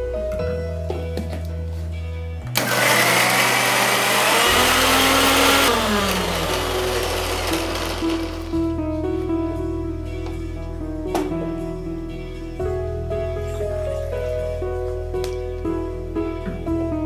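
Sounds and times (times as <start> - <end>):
motor winding down whine: 2.5 - 8.5
mixer grinder running: 2.5 - 8.6.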